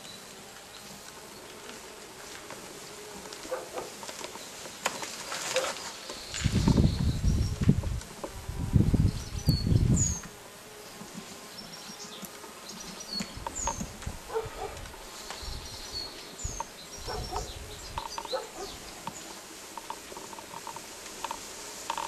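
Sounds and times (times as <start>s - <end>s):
insects buzzing: 0.0s - 22.0s
birds chirping: 3.5s - 8.0s, 11.4s - 20.7s.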